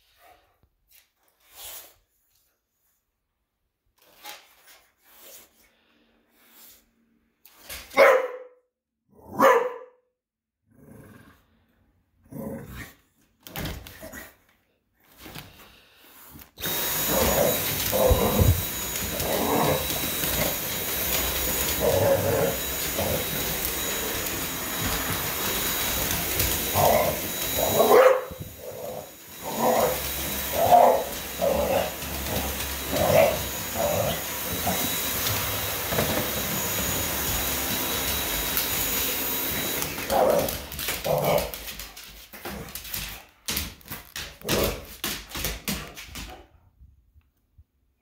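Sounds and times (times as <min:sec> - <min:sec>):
dog barking: 0:07.9 - 0:08.6, 0:09.3 - 0:10.0, 0:27.7 - 0:28.4
vacuum cleaner whining: 0:15.1 - 0:46.1.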